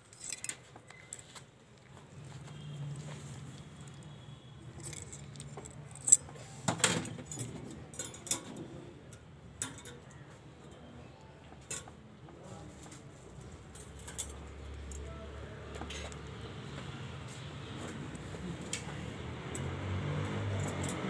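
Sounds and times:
metal instruments clinking: 0.0 - 1.4, 3.6 - 8.7, 13.6 - 15.1.

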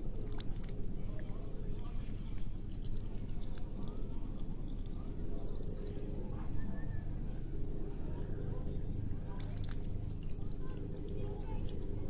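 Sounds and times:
duck dabbling in water: 0.0 - 6.4, 9.2 - 11.8.

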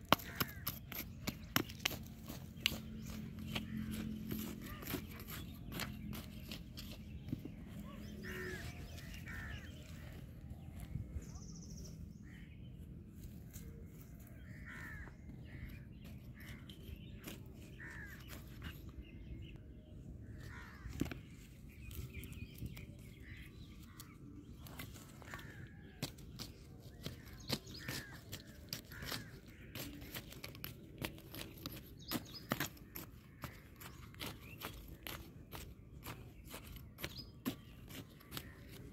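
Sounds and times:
hoe scraping dry soil: 0.0 - 10.3, 15.6 - 19.4, 24.0 - 38.9
birds calling: 0.0 - 38.9.

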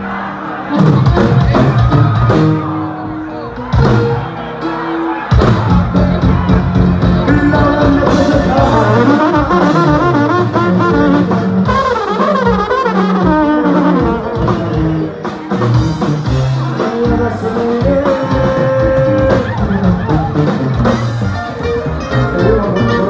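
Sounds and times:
guitars playing: 0.0 - 23.0
person singing: 7.0 - 11.5, 13.4 - 15.4, 16.4 - 20.6, 22.1 - 23.0
plucked upright bass: 13.7 - 23.0.

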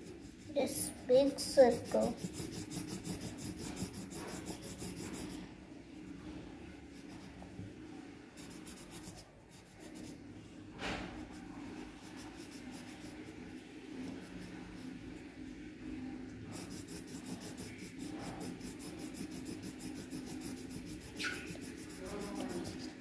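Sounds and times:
pen scribbling on paper: 0.0 - 5.4, 8.4 - 10.2, 11.2 - 15.0, 16.5 - 23.0.

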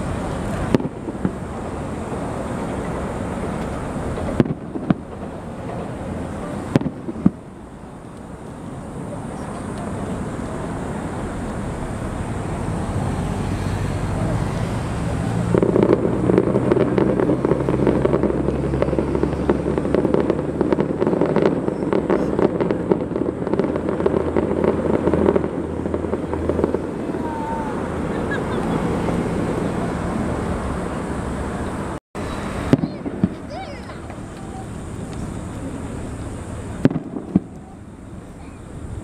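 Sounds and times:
sharp firework bang: 0.0 - 1.8, 2.6 - 7.5, 13.0 - 28.6, 32.2 - 35.4, 36.8 - 37.8
distant fireworks crackling bursts: 0.0 - 39.0.

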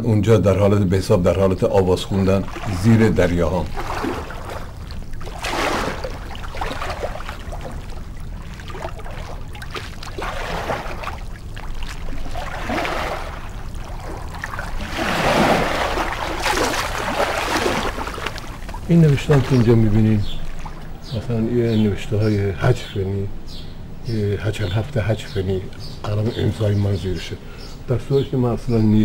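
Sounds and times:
rushing water: 0.6 - 22.8.

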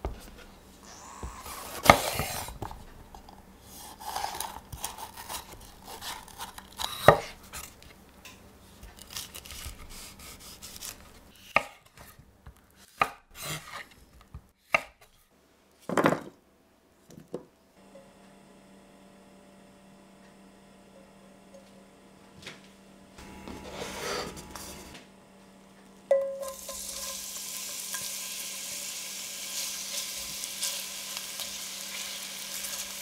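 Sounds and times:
knife chopping on wooden board: 14.7 - 15.0
faint steady hum: 16.4 - 33.0.

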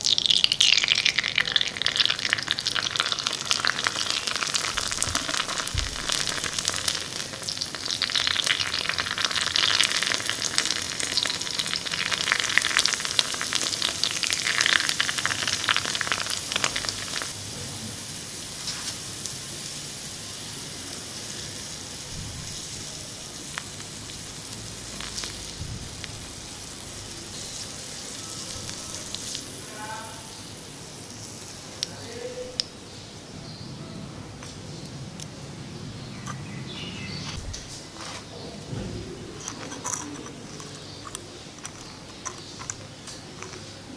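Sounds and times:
batter sizzling in hot oil: 0.0 - 33.6.

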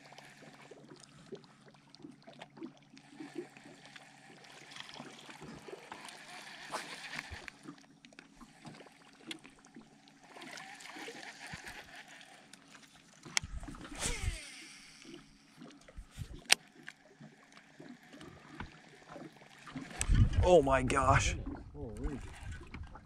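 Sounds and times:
fishing reel spool whirring: 0.0 - 20.6
water and handling noise: 0.0 - 23.0
reel click: 4.0 - 9.6, 10.4 - 20.2.

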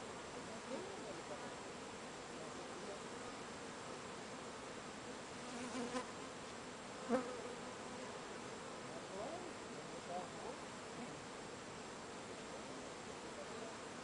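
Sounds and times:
bee swarm buzzing: 5.4 - 8.4.

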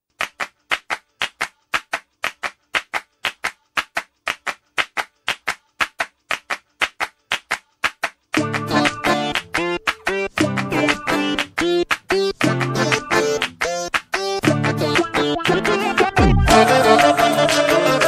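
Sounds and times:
hand claps: 0.1 - 18.0
band music: 14.7 - 18.0.

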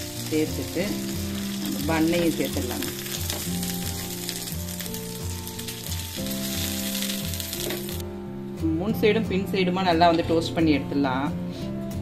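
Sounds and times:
butter sizzling in a pan: 0.0 - 8.0
background music: 0.0 - 12.0.

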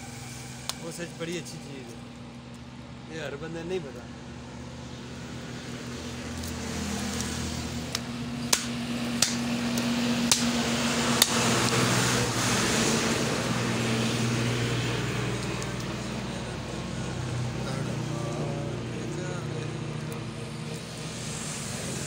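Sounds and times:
steady mechanical hum: 0.0 - 22.0
cleaver chopping on wooden block: 8.5 - 9.5.

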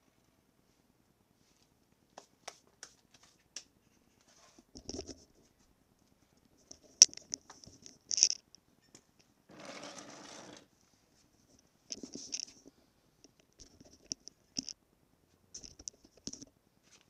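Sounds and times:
scrape: 4.2 - 4.7, 9.5 - 10.7.

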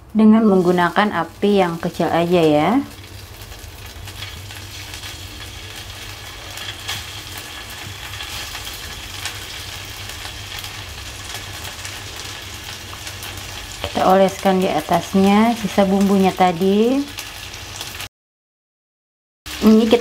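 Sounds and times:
meatballs sizzling on grill pan: 0.4 - 18.1, 19.5 - 20.0
small crackles: 0.6 - 14.0.

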